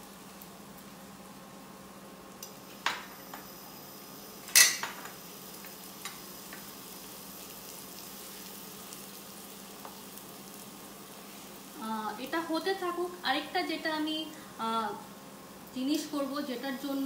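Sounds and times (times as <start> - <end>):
kebabs sizzling in a pan: 0.0 - 17.0
clinks against a pan: 4.5 - 5.1.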